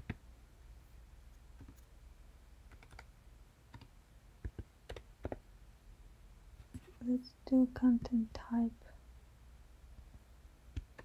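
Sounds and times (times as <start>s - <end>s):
computer keyboard keystrokes: 1.6s - 1.9s, 2.7s - 3.1s, 3.7s - 5.4s, 10.7s - 11.0s.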